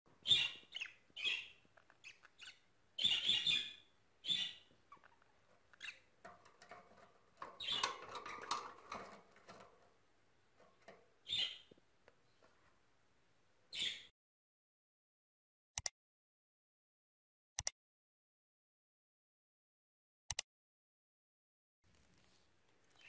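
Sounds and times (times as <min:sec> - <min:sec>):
budgerigars chirping: 0:00.2 - 0:06.1, 0:11.3 - 0:11.7, 0:13.7 - 0:14.1.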